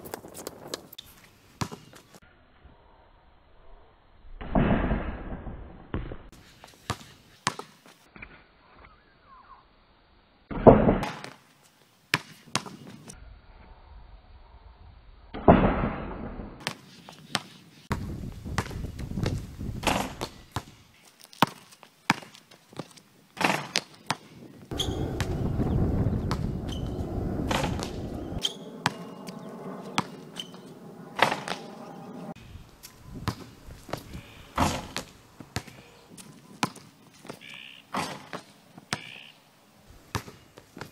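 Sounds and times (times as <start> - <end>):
ball slamming rim and backboard: 24.7 - 29.1, 30.0 - 30.6, 31.2 - 31.6, 34.6 - 35.8, 37.9 - 39.1
steady rushing noise: 24.7 - 32.8
basketball bouncing on concrete: 27.5 - 29.1, 33.2 - 35.8, 40.1 - 40.9.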